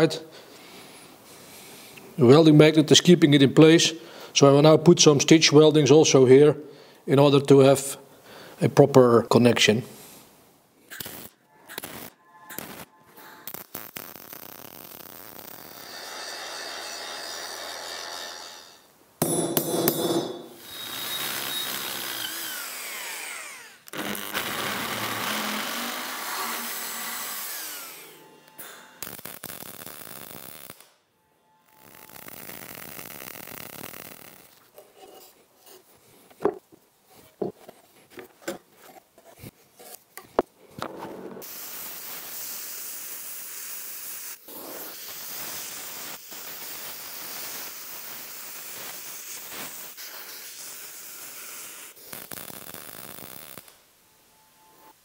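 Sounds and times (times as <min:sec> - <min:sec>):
sharp welding ticks: 0:10.9 - 0:15.8, 0:28.5 - 0:31.0, 0:31.8 - 0:34.6, 0:45.0 - 0:50.2, 0:51.7 - 0:53.8
welding arc crackling: 0:10.9 - 0:16.1, 0:20.6 - 0:28.0, 0:28.6 - 0:31.0, 0:31.7 - 0:34.7, 0:41.4 - 0:53.8
plasma cutter hissing: 0:41.4 - 0:53.6.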